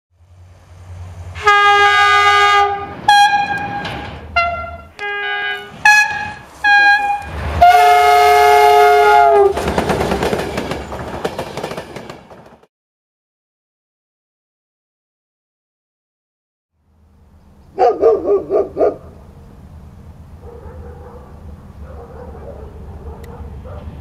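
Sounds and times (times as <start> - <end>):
locomotive engine rumble: 0.2 - 11.2, 16.8 - 24.0
train horn blasts: 1.3 - 9.6
train wheels clattering over rails: 3.0 - 4.4, 9.1 - 12.7.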